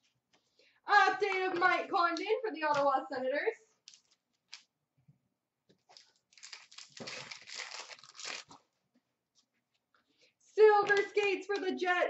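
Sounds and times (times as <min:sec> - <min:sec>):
wrapper crinkling and tearing: 0:05.9 - 0:08.6.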